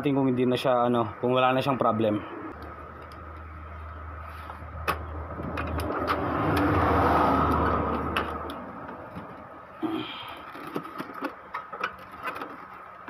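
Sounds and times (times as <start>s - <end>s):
vehicle passing: 4.0s - 9.6s.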